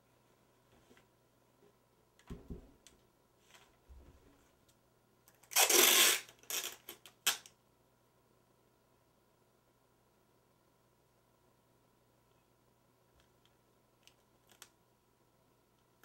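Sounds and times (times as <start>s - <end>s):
dull knocks of tube handled: 2.3s - 2.8s
packing tape ripping off roll: 5.4s - 7.5s.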